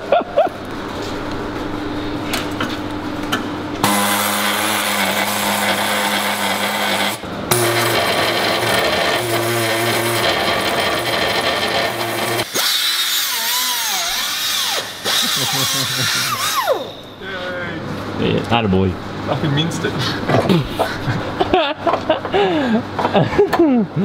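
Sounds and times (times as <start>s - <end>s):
grinder cutting steel: 3.8s - 17.2s.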